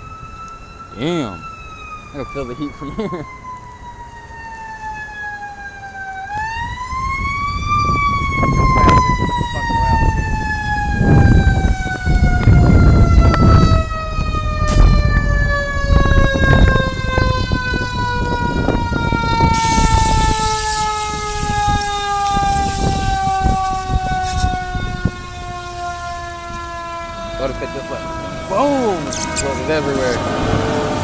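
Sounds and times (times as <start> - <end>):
fire engine siren wailing: 0.0 - 31.0
hiss: 19.6 - 20.8.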